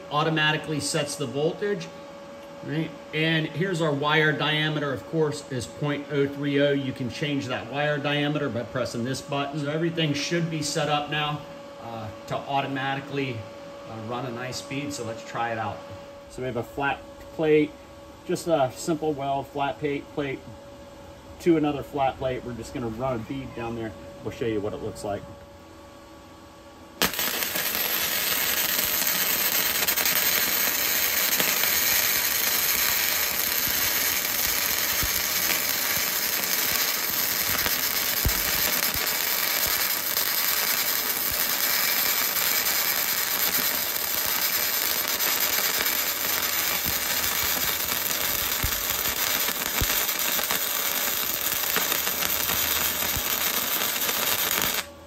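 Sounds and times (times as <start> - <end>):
welding arc crackling sizzle: 0.0 - 1.9, 27.0 - 55.0.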